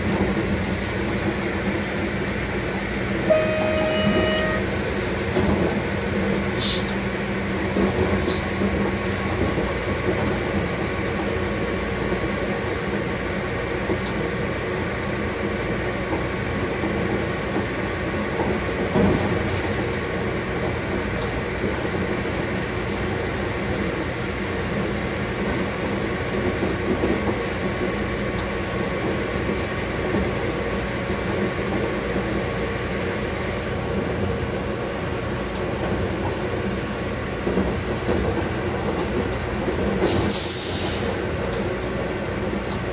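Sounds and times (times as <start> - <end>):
train wheels rumbling on rail: 0.0 - 42.9
steady held tones: 3.3 - 4.7.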